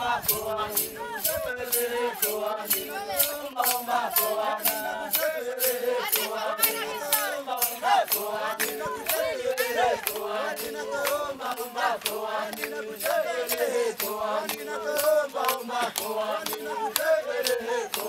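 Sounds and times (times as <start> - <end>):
group of voices chanting: 0.0 - 18.0
sharp rattling beat: 0.0 - 18.0.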